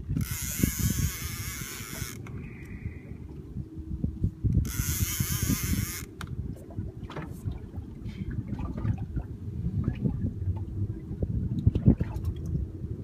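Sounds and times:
steady low rumble: 0.0s - 13.0s
fishing reel buzzing: 0.1s - 2.3s, 4.6s - 6.1s.

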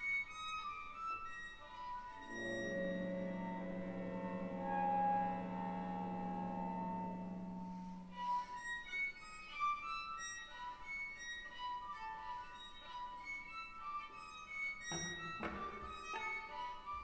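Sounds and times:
solo violin: 0.0s - 17.0s
chamber ensemble playing: 2.2s - 8.4s.

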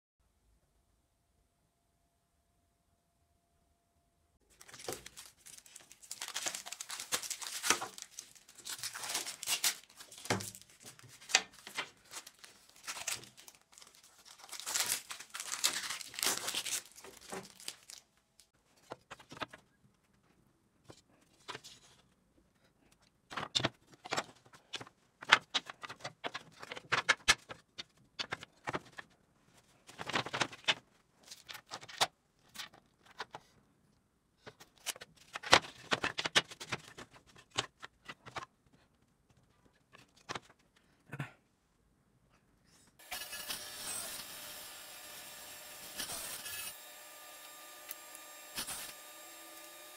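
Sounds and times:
masking tape tearing off wood: 45.0s - 49.9s.

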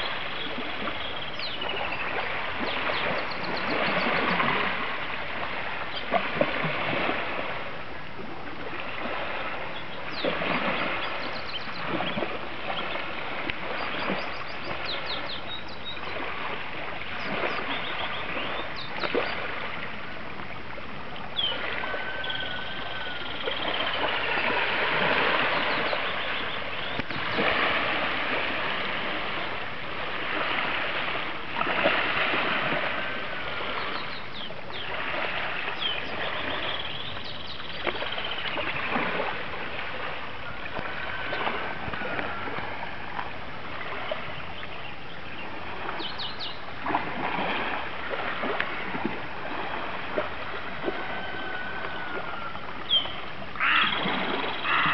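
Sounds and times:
lake waves lapping: 0.0s - 54.9s
birds calling: 21.3s - 27.5s, 50.9s - 54.9s.

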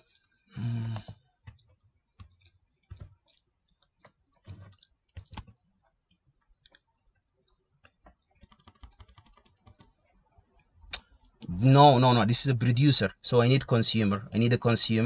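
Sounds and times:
faint keyboard typing: 0.0s - 11.5s.

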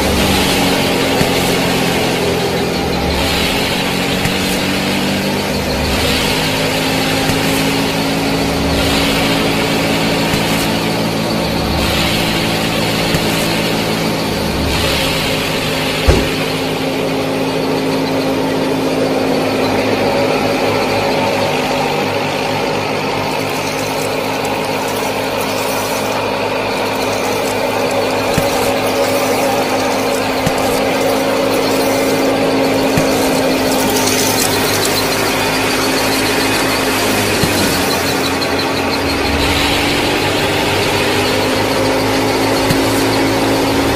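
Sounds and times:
small motor running steadily: 0.0s - 43.9s
sharp knock: 16.0s - 16.7s
fast high-pitched ticking: 23.2s - 43.9s.

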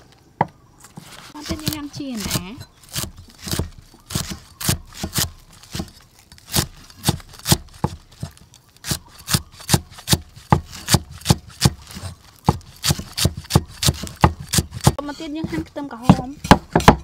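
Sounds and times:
cleaver chopping on wooden block: 1.4s - 17.0s.

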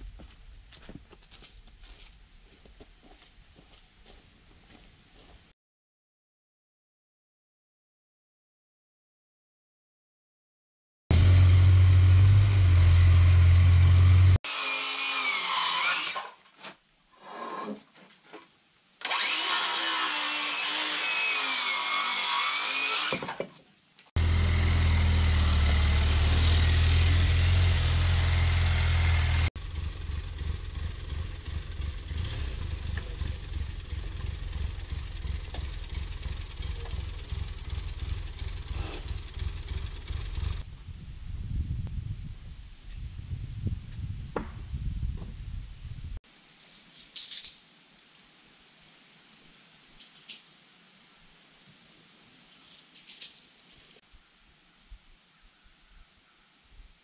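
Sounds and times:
power tool low hum: 11.1s - 16.4s, 19.0s - 23.4s, 24.1s - 40.6s.

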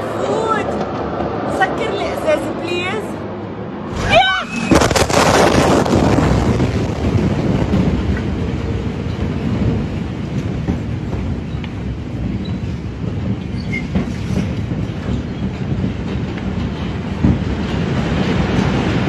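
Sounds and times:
low rumbling roar: 2.5s - 10.4s.

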